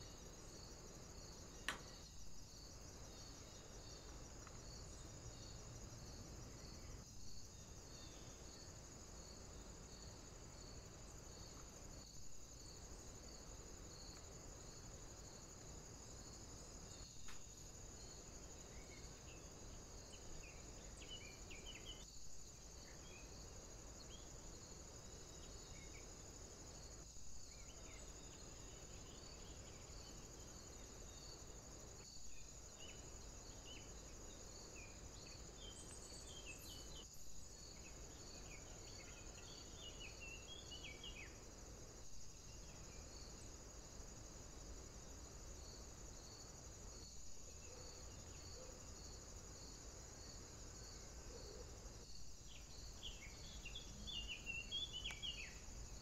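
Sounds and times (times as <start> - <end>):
crickets trilling: 0.0 - 56.0
brief click: 1.6 - 1.9
soft bird chirps: 52.5 - 56.0.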